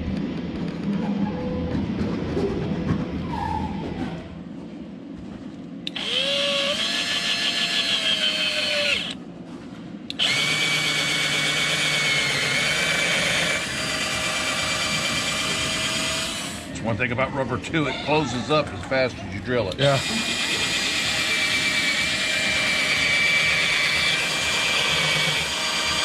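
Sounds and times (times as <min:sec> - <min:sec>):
cordless drill boring through rubber: 0:05.9 - 0:09.2, 0:10.1 - 0:16.7, 0:19.8 - 0:26.0.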